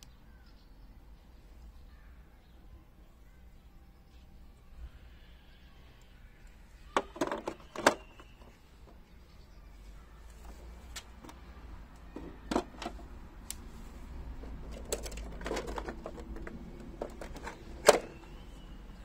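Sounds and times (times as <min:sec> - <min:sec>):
tools clicking and knocking: 0:14.4 - 0:18.2.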